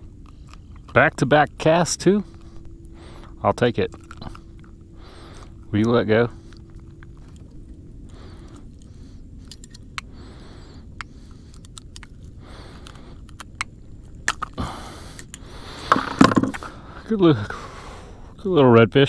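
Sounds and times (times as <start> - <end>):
lure and hook rattling: 2.0 - 7.8, 15.2 - 16.6.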